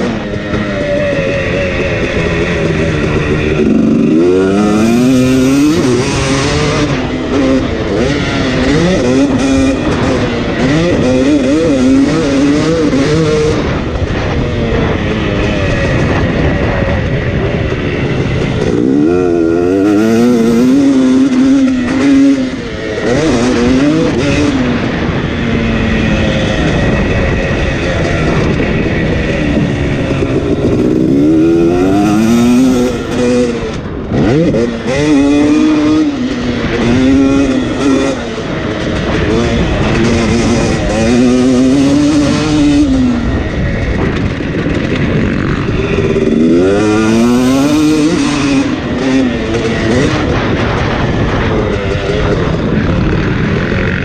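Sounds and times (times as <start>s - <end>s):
motocross engine revving: 0.0s - 54.0s.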